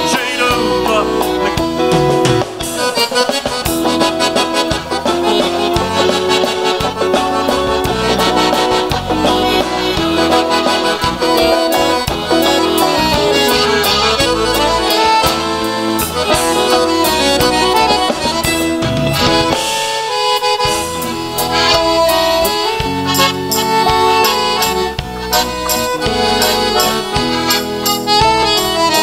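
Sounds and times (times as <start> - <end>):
accordions playing dance music: 0.0 - 29.0
acoustic guitar: 0.0 - 29.0
drums: 0.0 - 29.0
electric bass: 0.0 - 29.0.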